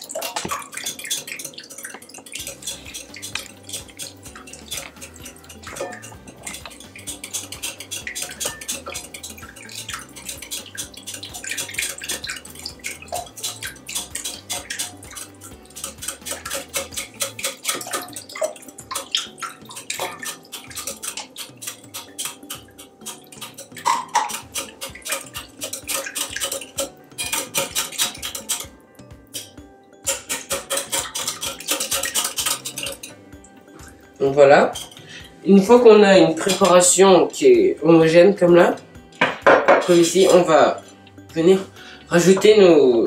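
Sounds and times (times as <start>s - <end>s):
whisk clicking against glass bowl: 0.0s - 29.5s, 30.1s - 33.2s.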